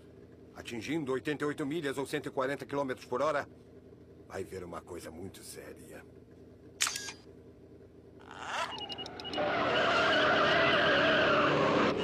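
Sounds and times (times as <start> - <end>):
sharp click: 6.8 - 7.2
tyres squealing: 8.3 - 12.0.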